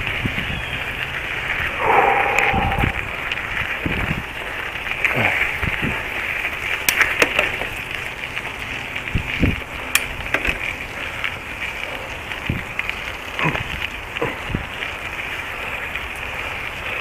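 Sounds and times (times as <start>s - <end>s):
wind noise on microphone: 0.0s - 6.4s, 9.0s - 10.3s, 12.3s - 12.8s, 14.4s - 14.8s.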